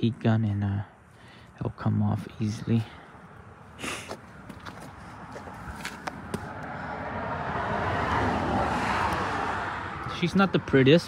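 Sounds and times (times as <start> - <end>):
vehicle tyre and road noise: 0.0 - 11.0
footsteps scuffing and clicking: 4.0 - 6.6.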